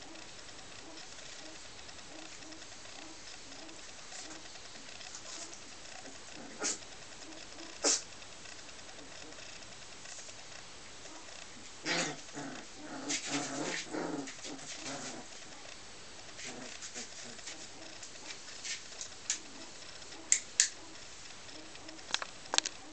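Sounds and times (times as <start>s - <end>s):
puppies growling: 0.0s - 10.3s, 11.0s - 22.9s
sharp clicks: 19.0s - 22.8s.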